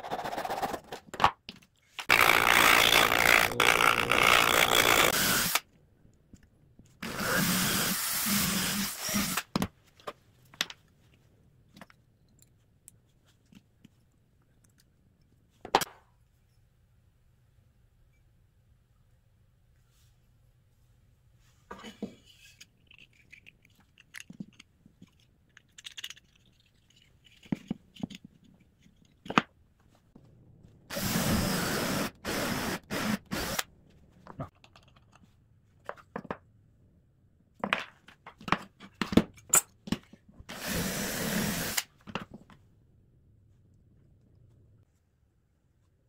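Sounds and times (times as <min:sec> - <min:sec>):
power drill drilling into wood: 0:04.2 - 0:05.6, 0:07.0 - 0:09.5, 0:30.9 - 0:33.6, 0:40.5 - 0:41.9.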